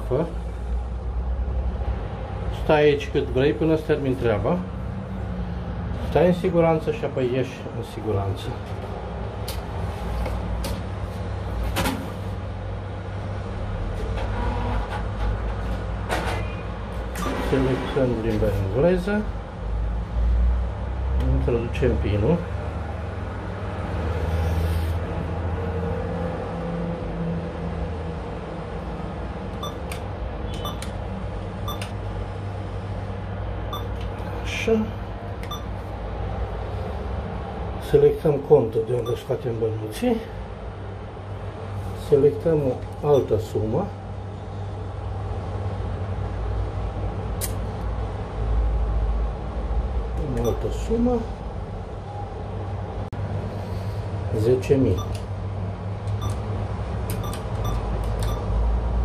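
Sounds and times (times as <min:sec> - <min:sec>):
steady low hum: 0:00.0 - 0:14.1, 0:16.8 - 0:59.0
keypad beeps: 0:17.2 - 0:17.5, 0:29.6 - 0:30.9, 0:31.6 - 0:32.0, 0:33.7 - 0:34.0, 0:35.5 - 0:35.7, 0:39.0 - 0:39.3, 0:50.4 - 0:50.6, 0:55.0 - 0:55.2, 0:56.1 - 0:56.5, 0:57.1 - 0:58.5.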